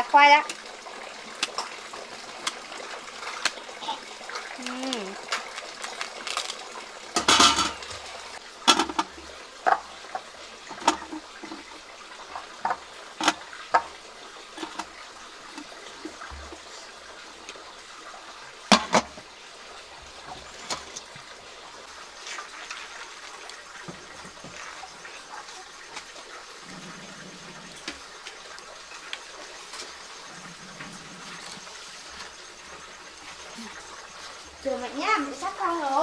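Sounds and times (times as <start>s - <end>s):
glass lid clanking on pot: 7.2s - 7.8s.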